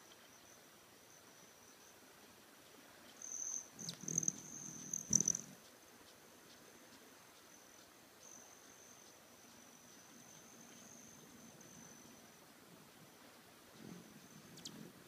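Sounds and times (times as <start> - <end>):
hummingbird wing hum and trill: 0.0 - 15.0
hummingbird chips: 3.1 - 5.6.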